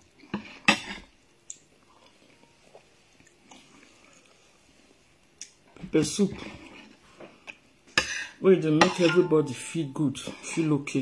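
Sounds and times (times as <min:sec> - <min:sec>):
quiet chewing: 0:01.3 - 0:05.7.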